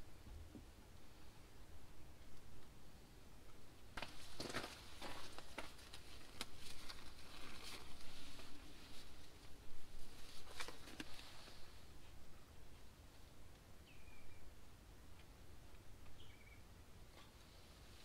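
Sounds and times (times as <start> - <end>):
rubber gloves rustling: 4.0 - 12.8.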